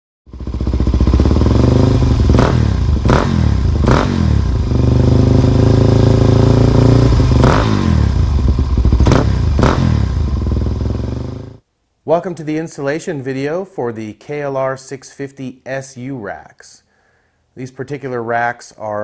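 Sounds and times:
motorcycle engine revving: 0.3 - 11.6.

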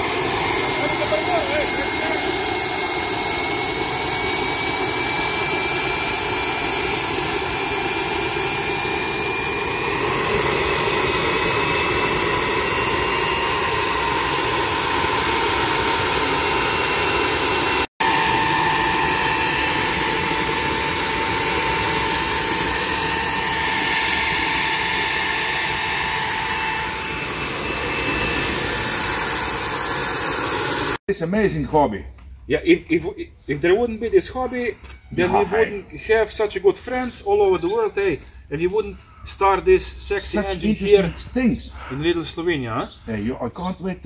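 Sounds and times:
high turbine whines: 0.0 - 31.0
jet turbine rushing noise: 0.0 - 31.0.

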